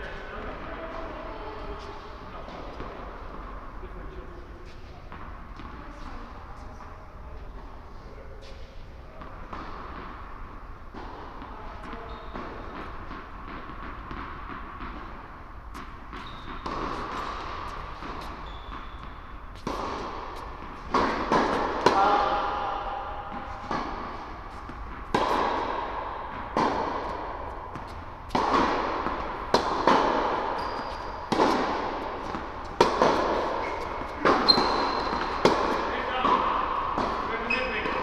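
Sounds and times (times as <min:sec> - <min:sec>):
tennis ball bouncing on court: 0:04.6 - 0:06.6, 0:09.2 - 0:38.0
tennis ball hit by racket: 0:09.2 - 0:38.0.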